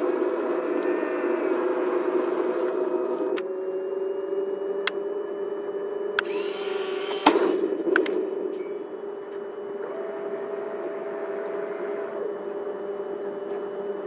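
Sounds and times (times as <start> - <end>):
electric motor hum: 0.0 - 14.0
sharp clicks: 6.2 - 8.2
sharp crack: 7.1 - 8.6.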